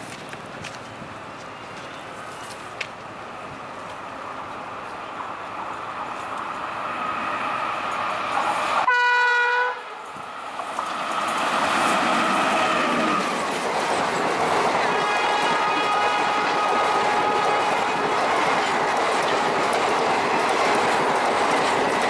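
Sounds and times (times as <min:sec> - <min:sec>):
train wheels on track: 0:00.0 - 0:22.0
train horn blast: 0:08.8 - 0:10.1, 0:14.8 - 0:18.2.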